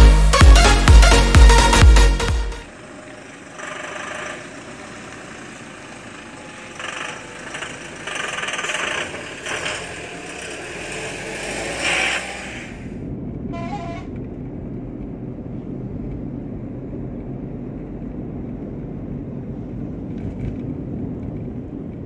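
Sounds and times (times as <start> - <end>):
bus diesel engine driving past: 2.7 - 16.0.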